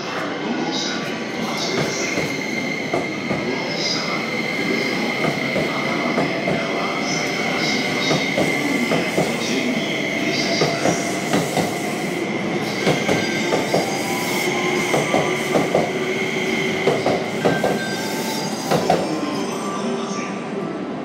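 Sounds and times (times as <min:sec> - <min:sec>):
high-pitched train whine: 0:00.0 - 0:20.8
train wheels knocking on rail joints: 0:16.8 - 0:17.8.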